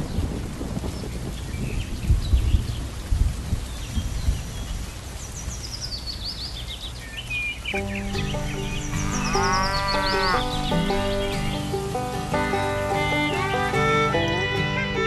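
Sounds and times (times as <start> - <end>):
rain hiss: 0.0 - 15.0
high falling bird chirps: 5.4 - 14.7
light background music: 7.8 - 15.0
long rising and falling call: 7.8 - 15.0.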